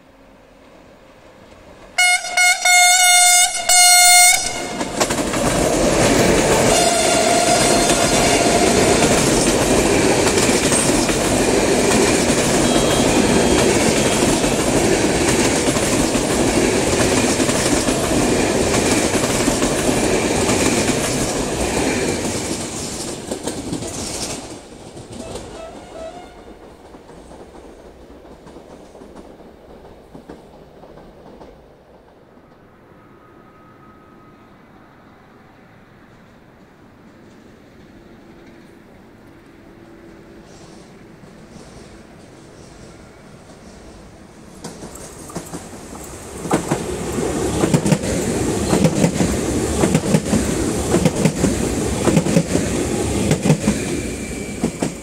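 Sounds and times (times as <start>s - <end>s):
train horn blasts: 2.0s - 5.0s, 6.6s - 9.2s, 12.5s - 14.6s, 25.2s - 26.6s
train coaches clattering over rails: 4.5s - 32.2s, 40.7s - 55.0s.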